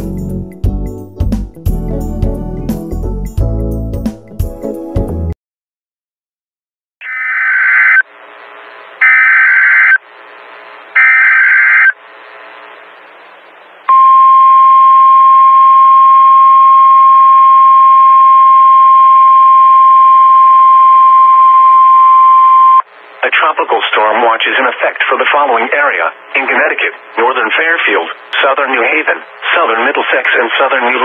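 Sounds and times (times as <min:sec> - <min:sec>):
screeching digital data bursts: 0:07.0 - 0:08.0, 0:09.0 - 0:10.0, 0:11.0 - 0:12.0
steady alarm tone: 0:09.0 - 0:10.0, 0:11.0 - 0:12.0
radio hiss: 0:23.0 - 0:31.0.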